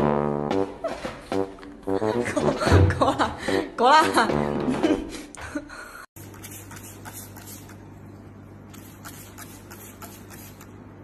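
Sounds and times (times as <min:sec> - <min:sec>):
spray bottle spritzes: 0:06.2 - 0:07.8, 0:08.7 - 0:10.7.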